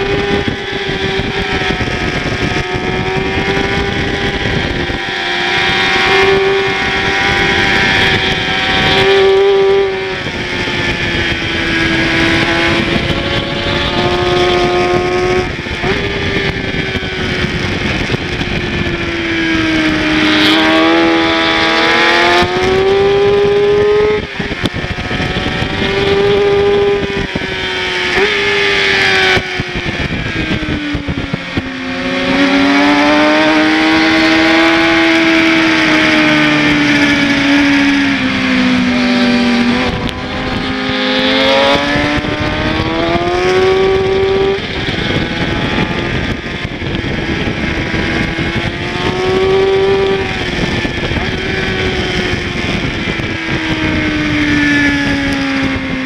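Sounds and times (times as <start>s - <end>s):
motorcycle engine revving: 0.0s - 56.0s
wind rushing: 0.0s - 56.0s.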